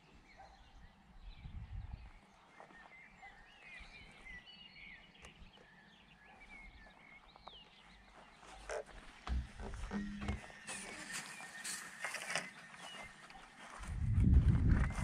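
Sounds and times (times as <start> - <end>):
small birds chirping: 0.0 - 14.1
knocks and rustles near microphone: 8.6 - 11.2.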